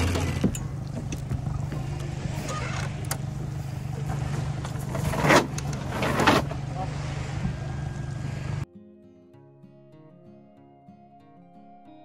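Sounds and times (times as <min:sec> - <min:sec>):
windlass low hum: 0:00.0 - 0:08.6.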